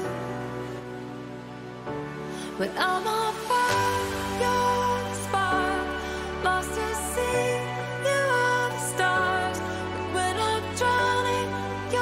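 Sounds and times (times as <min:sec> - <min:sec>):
dj mix with bass and melody: 0:02.6 - 0:12.0.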